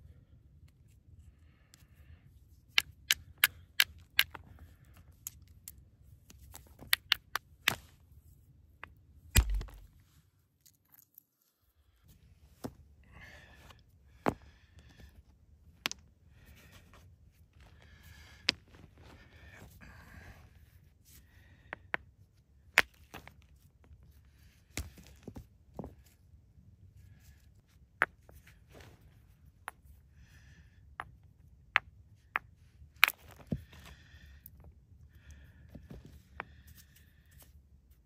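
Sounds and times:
stone knocking on stone: 9.4s - 9.8s
heavy thud: 9.4s - 9.9s
rocks set down on cloth: 9.4s - 10.0s.

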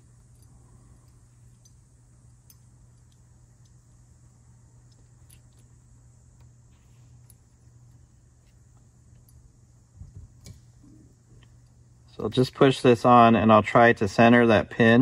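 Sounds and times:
small metal parts clicking: 0.0s - 4.1s, 4.8s - 5.8s
steady low hum: 0.0s - 15.0s.

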